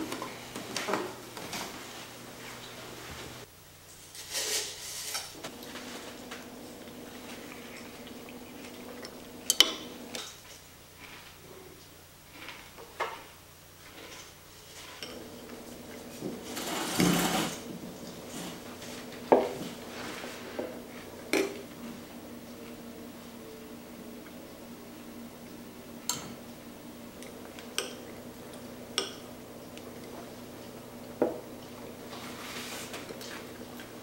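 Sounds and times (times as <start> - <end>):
faint steady hum: 0.0 - 34.0
rustling scrape: 3.1 - 9.0, 13.8 - 21.0, 32.1 - 33.5.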